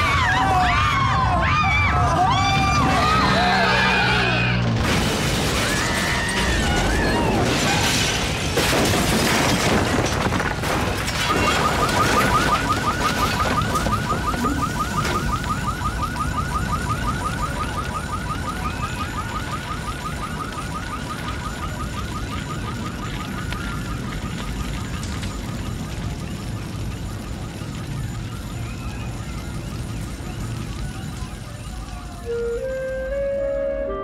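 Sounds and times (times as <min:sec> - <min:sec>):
wreckage rumbling and clattering: 0:04.6 - 0:17.4
car alarm beeping: 0:11.2 - 0:23.9.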